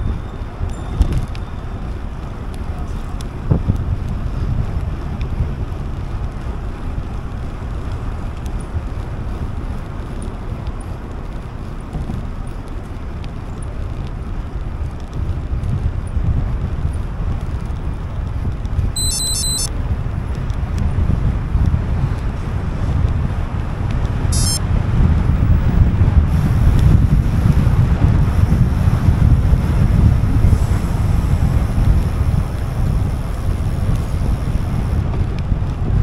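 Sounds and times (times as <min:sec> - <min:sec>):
wind rushing over microphone: 0:00.0 - 0:36.0
high electronic beeps: 0:19.0 - 0:19.7, 0:24.3 - 0:24.6.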